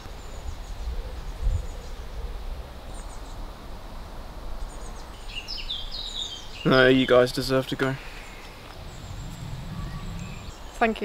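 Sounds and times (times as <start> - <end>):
wind rumble on microphone: 0.0 - 6.0, 8.3 - 11.0
faint bird chirps: 4.6 - 11.0
low bump: 8.5 - 10.6.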